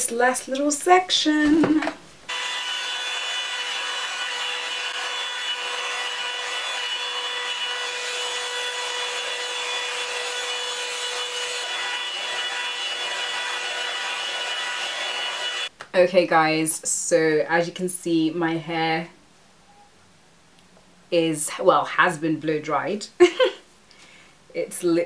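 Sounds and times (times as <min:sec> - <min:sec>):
hair dryer brush running: 0:02.3 - 0:15.7.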